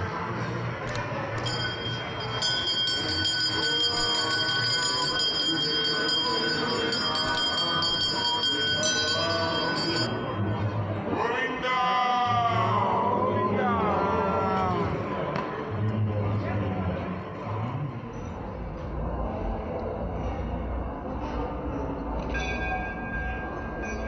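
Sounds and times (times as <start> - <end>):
voices: 0.0 - 22.3
hand bell ringing: 0.9 - 11.0.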